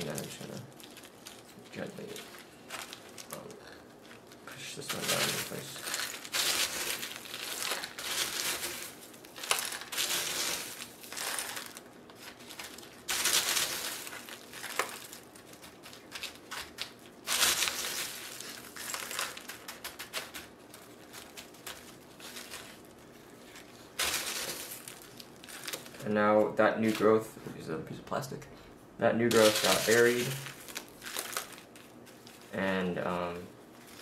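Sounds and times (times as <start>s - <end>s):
hands scooping potting mix in foil tray: 0.0s - 28.3s, 29.1s - 34.0s.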